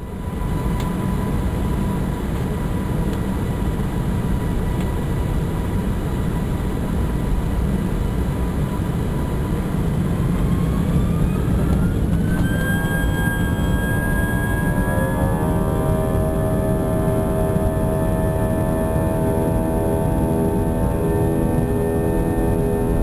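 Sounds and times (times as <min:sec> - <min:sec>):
engine whine rising in pitch: 0:00.0 - 0:03.1, 0:08.8 - 0:23.0
airliner engines rumbling: 0:00.0 - 0:23.0.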